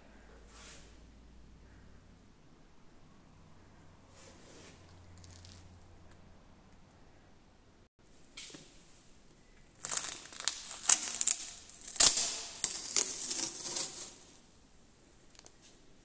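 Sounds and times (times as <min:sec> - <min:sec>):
masking tape peeling: 0:09.7 - 0:14.5.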